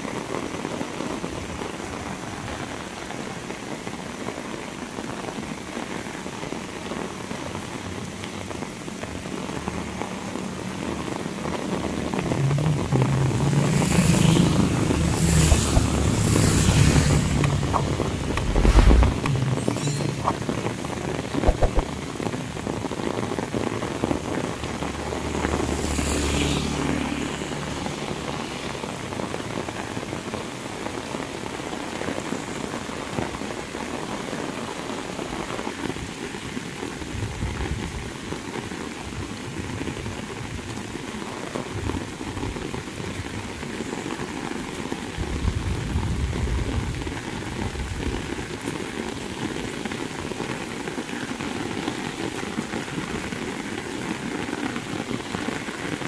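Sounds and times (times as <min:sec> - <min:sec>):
heavy rain on pavement: 0:00.0 - 0:56.0
low rumble: 0:12.2 - 0:21.9
low wind buffeting: 0:14.1 - 0:19.6.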